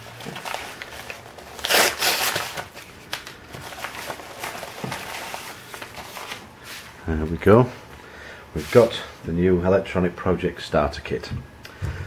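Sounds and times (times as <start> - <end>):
envelope paper crinkling: 0.0 - 6.5.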